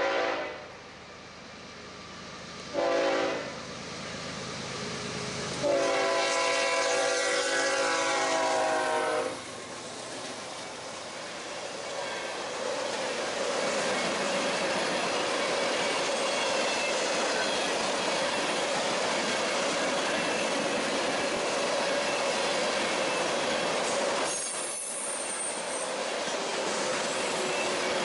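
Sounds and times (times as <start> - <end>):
steel wheels rushing on rail: 0.0 - 28.0
faint high wheel squealing: 10.5 - 28.0.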